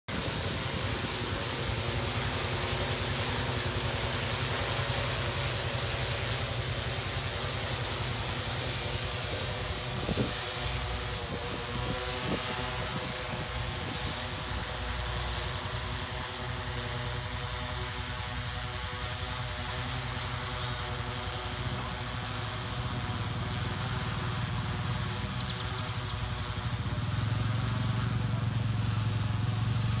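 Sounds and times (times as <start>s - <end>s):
rushing hiss of air: 0.1s - 18.5s
drone propellers humming: 0.1s - 30.0s.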